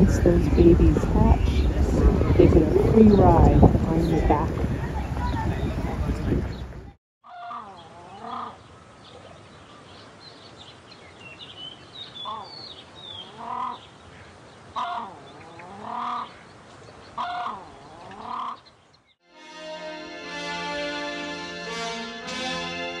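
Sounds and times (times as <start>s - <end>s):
grebes calling: 7.3s - 9.4s, 12.1s - 18.8s
music: 19.2s - 23.0s.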